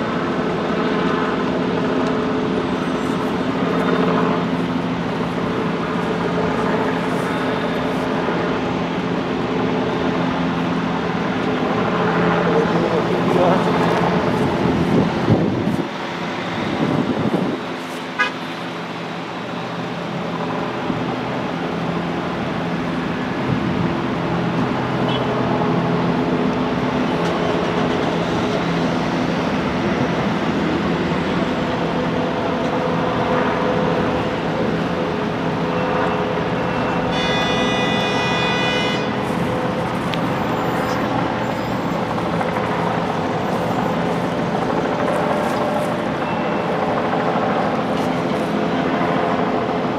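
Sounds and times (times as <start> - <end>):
road traffic passing: 0.0 - 49.9
vehicle horn: 18.2 - 18.4, 25.0 - 25.3, 37.0 - 39.2.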